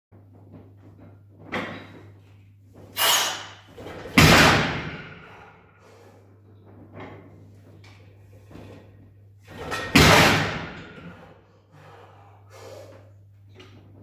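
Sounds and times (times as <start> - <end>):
barbell plates thudding on floor: 9.5 - 11.2.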